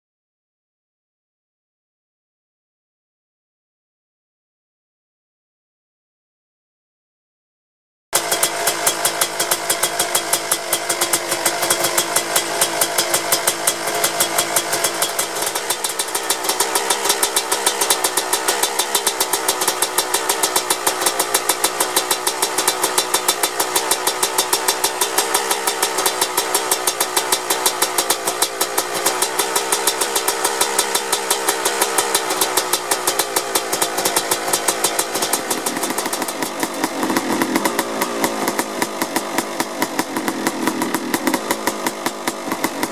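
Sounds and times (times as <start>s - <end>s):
two-stroke engine idling: 8.2s - 42.9s.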